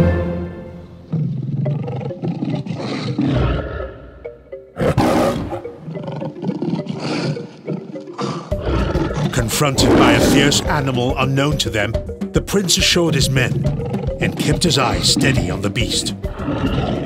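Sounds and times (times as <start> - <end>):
dramatic orchestral music: 0.0 - 1.1, 8.4 - 17.0
lion roaring: 1.0 - 11.2, 13.5 - 17.0.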